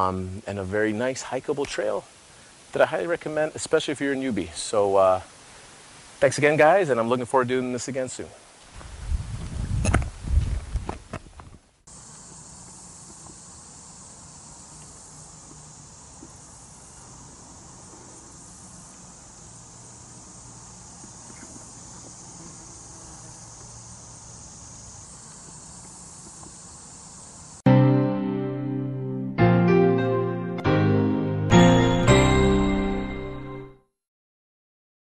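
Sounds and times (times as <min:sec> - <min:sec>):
insect chorus drone: 0:11.9 - 0:27.6.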